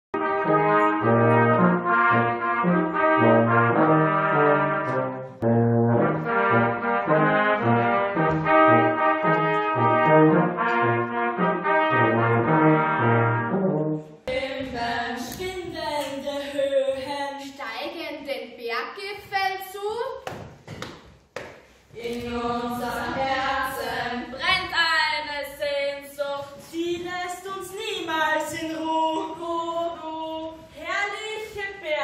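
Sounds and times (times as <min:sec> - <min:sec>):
brass ensemble playing lively tune: 0:00.2 - 0:14.2.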